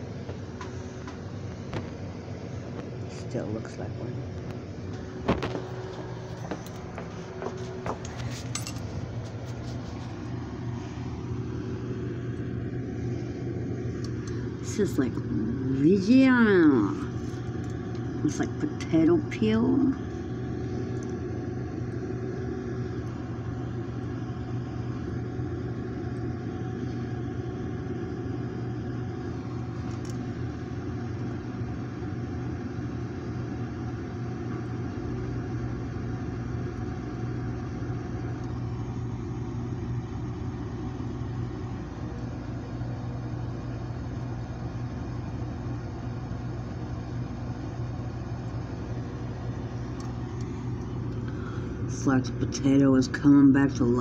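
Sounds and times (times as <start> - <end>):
low hum and rumble: 0.0 - 54.0.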